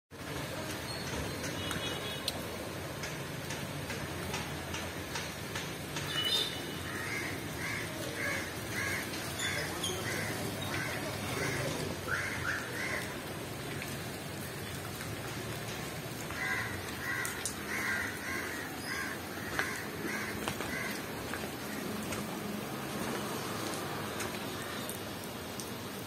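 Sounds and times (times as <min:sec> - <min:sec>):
rain falling on water: 0:00.1 - 0:26.0
crows cawing: 0:06.8 - 0:13.2, 0:16.3 - 0:21.8.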